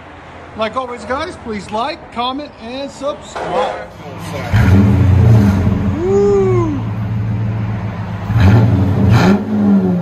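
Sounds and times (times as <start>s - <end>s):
car engine revving and idling: 3.9s - 10.0s.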